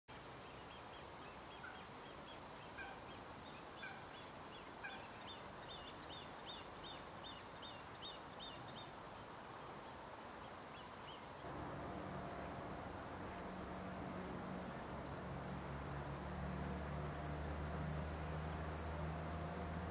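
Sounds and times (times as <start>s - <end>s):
bird chicks piping calls: 0.5s - 8.9s
steady low hum: 11.4s - 19.9s.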